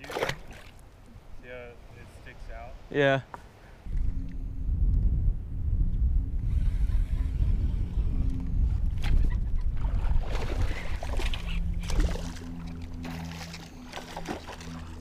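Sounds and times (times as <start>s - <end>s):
low rumble: 3.8s - 15.0s.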